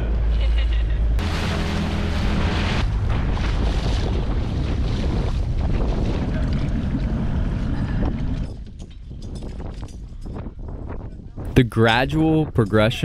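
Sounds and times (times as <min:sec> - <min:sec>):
water rushing past: 0:01.2 - 0:08.2
outboard motor running: 0:01.2 - 0:08.6
wind buffeting microphone: 0:02.0 - 0:13.0.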